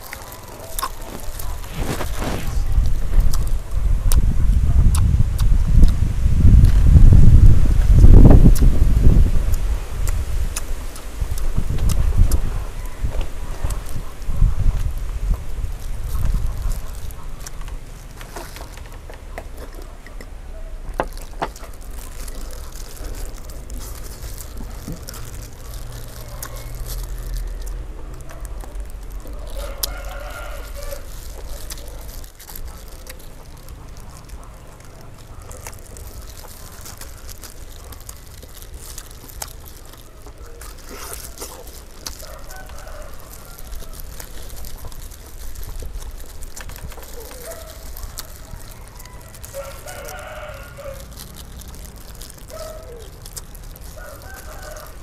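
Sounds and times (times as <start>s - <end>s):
plastic gloves rustling: 0.0s - 4.0s, 5.1s - 20.1s, 20.7s - 55.0s
chewing: 0.0s - 55.0s
roosters crowing: 29.2s - 32.0s, 41.3s - 44.5s, 47.2s - 55.0s.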